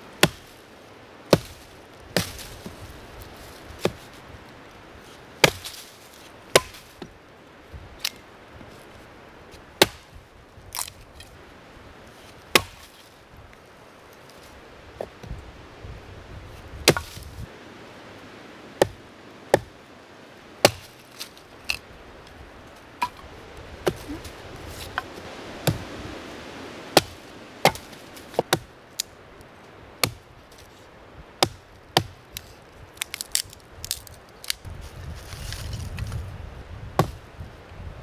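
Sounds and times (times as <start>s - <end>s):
firewood chopping strikes: 0.2s - 0.5s, 1.3s - 2.8s, 3.8s - 4.2s, 5.4s - 5.9s, 6.5s - 7.2s, 9.8s - 11.0s, 12.5s - 13.0s, 16.8s - 17.3s, 18.8s - 19.8s, 20.6s - 21.8s, 23.0s - 25.9s, 26.9s - 29.1s, 30.0s - 30.3s, 31.4s - 34.6s, 37.0s - 37.2s.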